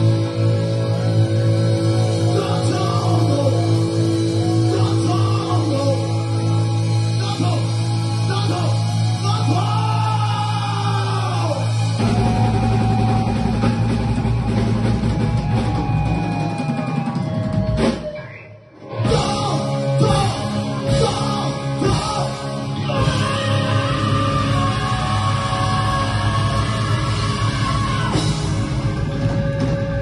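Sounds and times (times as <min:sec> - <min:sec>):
drum kit: 0:00.0 - 0:30.0
electric guitars: 0:00.0 - 0:30.0
person singing: 0:02.2 - 0:06.2, 0:19.0 - 0:28.5.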